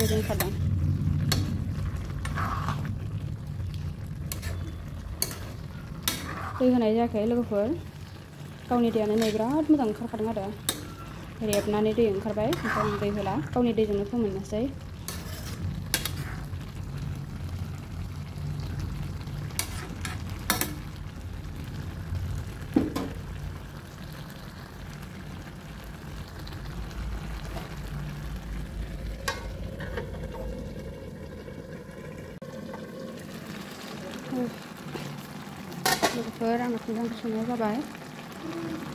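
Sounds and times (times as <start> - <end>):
steady low rumble: 0.0 - 4.3
curry bubbling in a pan: 0.0 - 38.9.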